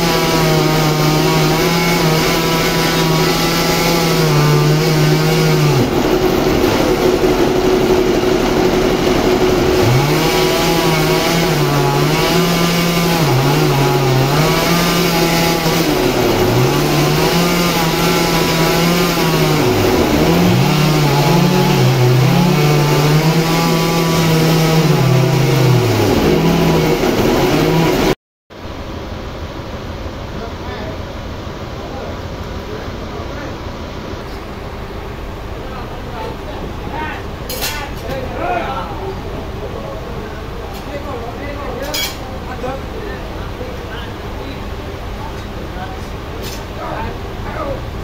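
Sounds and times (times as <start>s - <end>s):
chainsaw cutting a log: 0.0s - 28.2s.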